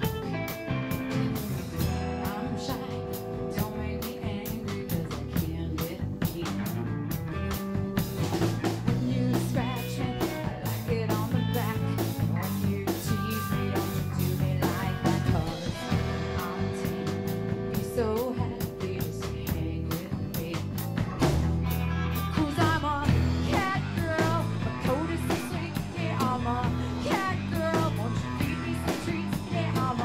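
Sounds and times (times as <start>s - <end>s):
acoustic guitar: 0.0s - 30.0s
drum kit beat: 0.0s - 30.0s
electric bass: 0.0s - 30.0s
electric guitar: 0.0s - 30.0s
woman singing: 1.8s - 7.1s, 8.8s - 21.0s, 21.8s - 30.0s.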